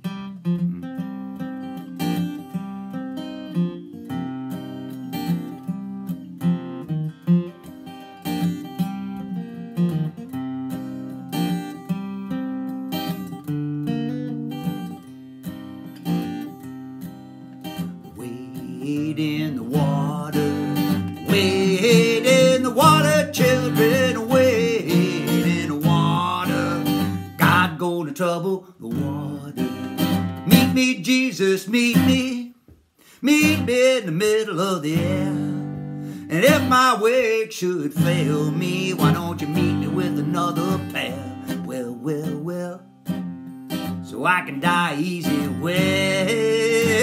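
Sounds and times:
acoustic guitar strumming: 0.0s - 47.0s
man singing: 18.0s - 43.0s, 44.0s - 47.0s.

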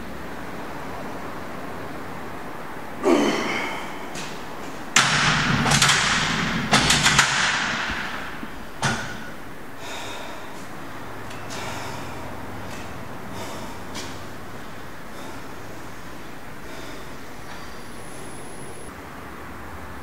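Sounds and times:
weights rattling: 4.2s - 9.7s
dumbbells clanking on metal rack: 4.2s - 10.3s.

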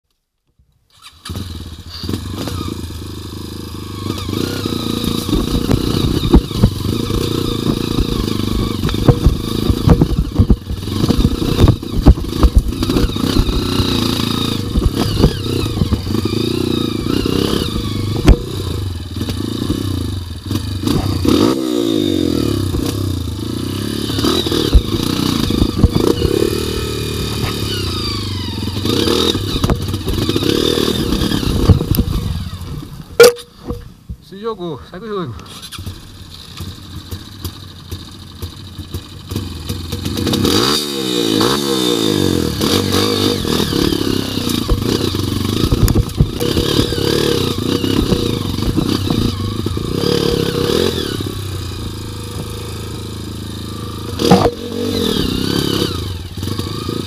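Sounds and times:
dirt bike engine running: 1.1s - 34.1s, 35.4s - 57.0s
knocks and clatter over rocks: 5.1s - 13.8s, 14.6s - 16.4s, 17.4s - 19.9s, 24.2s - 27.7s, 29.1s - 32.3s, 43.7s - 50.0s, 54.1s - 54.7s.

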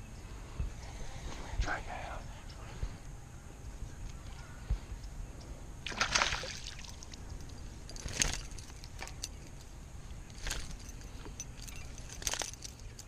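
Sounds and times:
water splashing and trickling: 5.9s - 7.3s.

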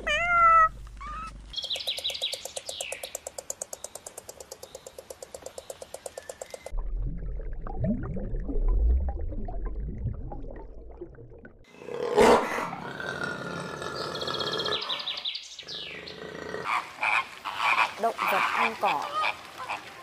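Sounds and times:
animal growling roars: 11.7s - 16.7s.

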